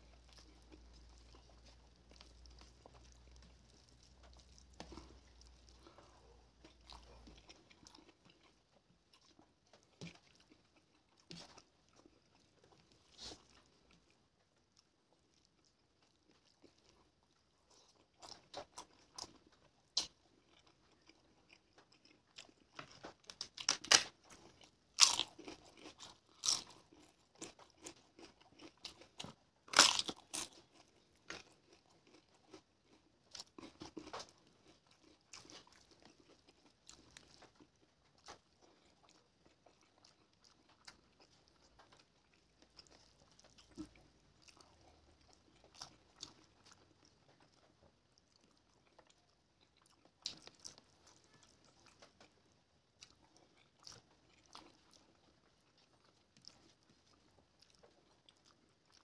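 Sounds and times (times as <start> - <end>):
chewing and wet mouth sounds: 0.0 - 59.0.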